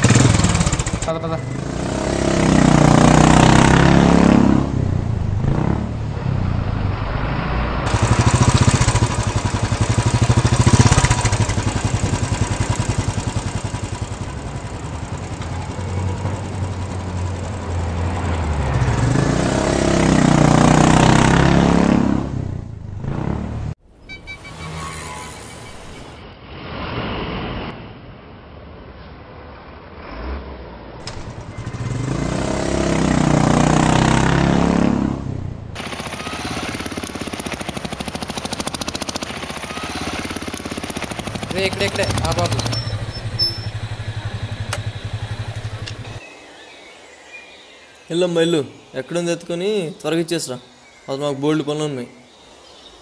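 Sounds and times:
motorcycle engine accelerating: 0.0 - 23.8, 31.0 - 46.2
street traffic: 0.0 - 26.8, 28.1 - 46.6.

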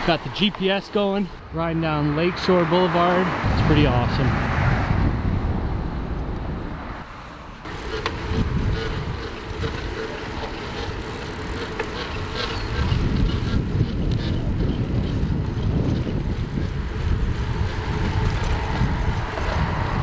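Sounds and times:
wind on microphone: 3.4 - 20.0
bicycle rolling on pavement: 7.6 - 20.0.

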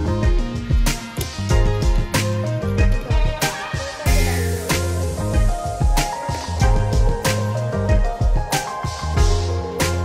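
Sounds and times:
bass line: 0.0 - 10.0
drums: 0.0 - 10.0.

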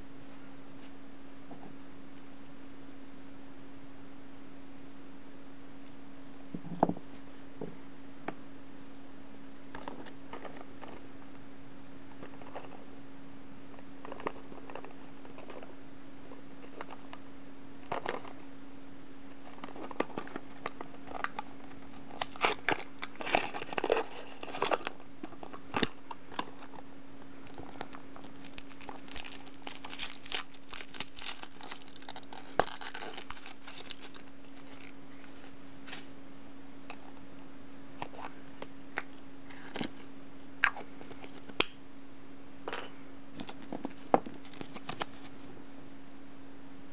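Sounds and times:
steady low hum: 0.0 - 46.9
packaging crinkling and tearing: 19.4 - 36.0, 41.0 - 41.7, 43.4 - 45.4.

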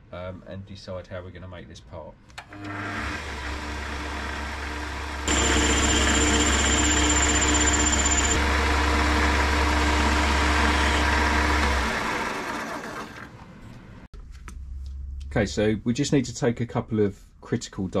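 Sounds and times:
lathe motor hum: 2.5 - 13.3
thin high whine: 5.3 - 8.4.

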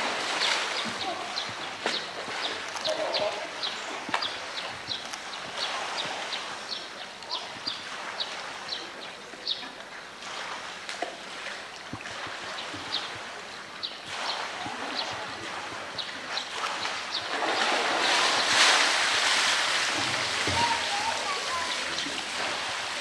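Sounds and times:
water sloshing and lapping: 0.0 - 23.0
splash of animal surging up: 16.6 - 20.8.

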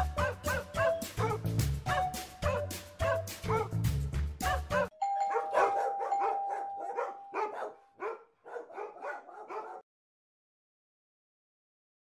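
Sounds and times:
dog barking and yipping: 0.2 - 1.4, 3.4 - 3.8, 4.8 - 9.9.

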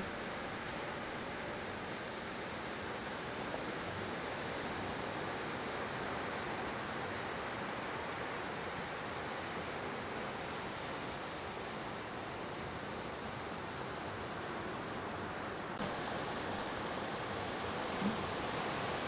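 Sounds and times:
ocean surf breaking: 15.8 - 19.0.

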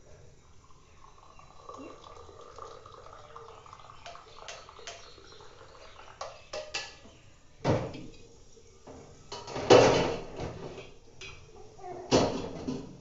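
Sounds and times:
light taps of utensils: 6.2 - 11.5.

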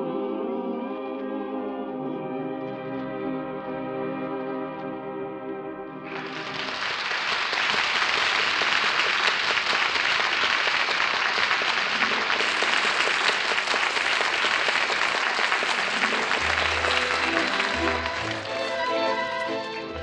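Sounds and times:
audience applauding: 6.1 - 20.0.

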